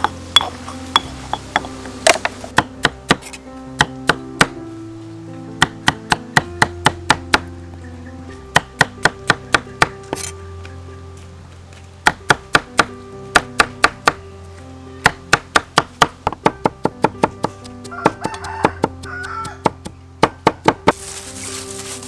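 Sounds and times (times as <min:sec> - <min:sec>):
cleaver chopping on wooden board: 0:00.0 - 0:04.6, 0:05.6 - 0:07.5, 0:08.5 - 0:10.3, 0:12.0 - 0:14.2, 0:15.0 - 0:21.0.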